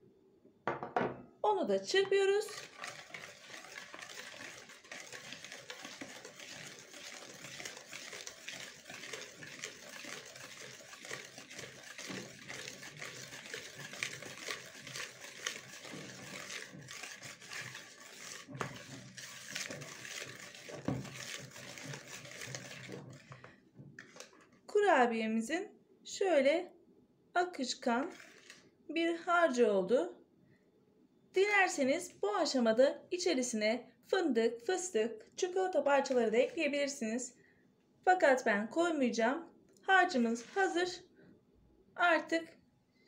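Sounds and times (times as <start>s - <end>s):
whisk beating batter in bowl: 1.9s - 24.4s, 27.8s - 28.6s, 35.5s - 37.0s, 40.0s - 40.9s.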